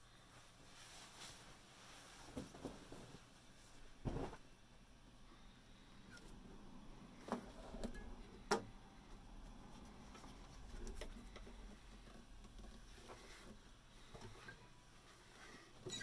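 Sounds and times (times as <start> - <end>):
soft rustle: 0.1 - 4.5.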